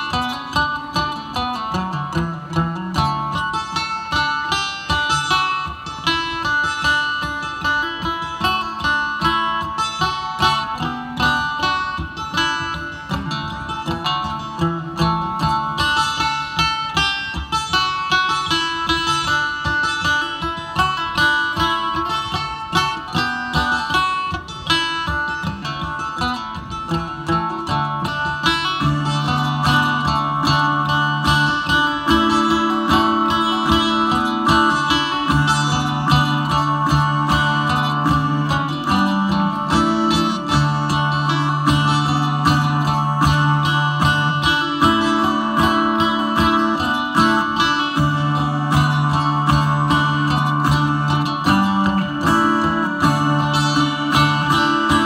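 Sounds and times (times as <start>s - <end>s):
acoustic string band playing: 0.0s - 55.0s
banjo picking: 0.0s - 55.0s.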